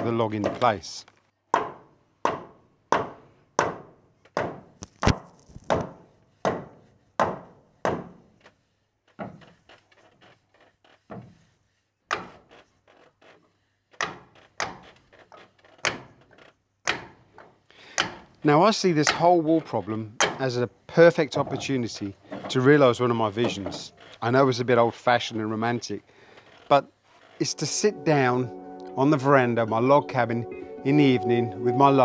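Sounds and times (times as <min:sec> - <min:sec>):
hammer knocking wedges into log: 0:01.5 - 0:08.2.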